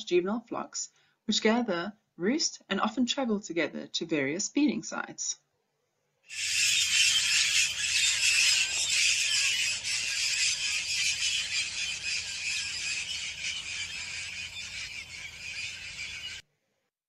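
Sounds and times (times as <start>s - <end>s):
parrots screeching: 6.3s - 16.4s.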